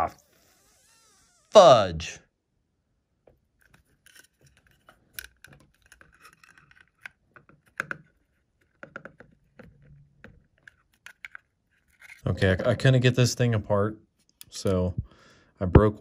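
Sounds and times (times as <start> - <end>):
screwdriver scraping plastic housing: 3.6 - 12.2.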